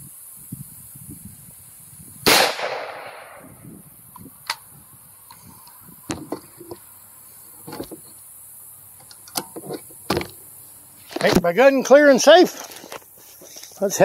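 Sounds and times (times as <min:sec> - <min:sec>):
rifle shot: 0:02.2 - 0:03.5.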